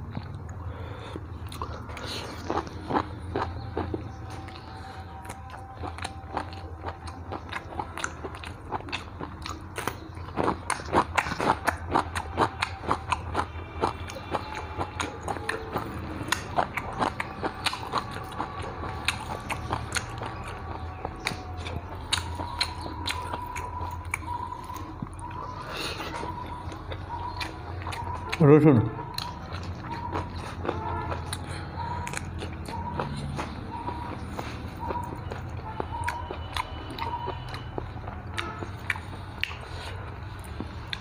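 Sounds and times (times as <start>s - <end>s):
person chewing and biting: 0.0s - 28.4s, 29.0s - 41.0s.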